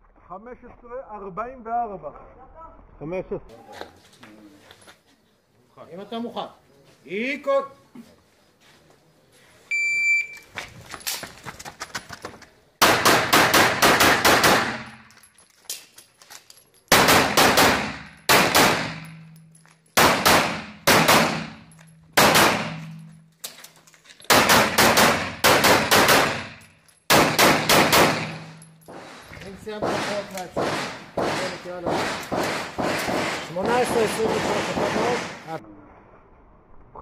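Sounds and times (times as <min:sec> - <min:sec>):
shot timer beep: 0:09.7 - 0:10.4
pistol shots: 0:12.8 - 0:15.0, 0:16.9 - 0:19.3, 0:20.0 - 0:23.0, 0:24.3 - 0:28.6, 0:29.8 - 0:35.4.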